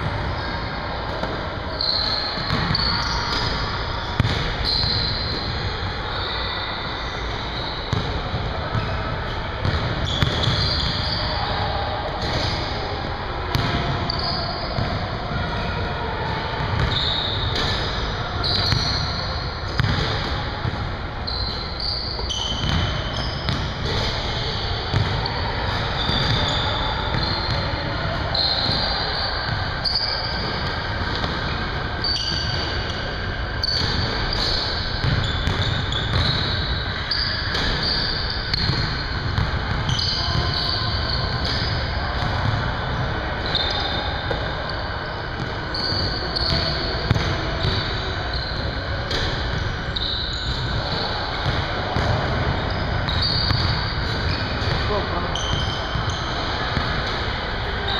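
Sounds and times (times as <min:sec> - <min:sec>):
voices in background: 0:00.0 - 0:57.9
basketballs bouncing on hardwood floor: 0:02.4 - 0:02.8, 0:19.8 - 0:20.3, 0:22.5 - 0:24.0, 0:24.9 - 0:25.2, 0:33.7 - 0:36.5, 0:45.9 - 0:47.8.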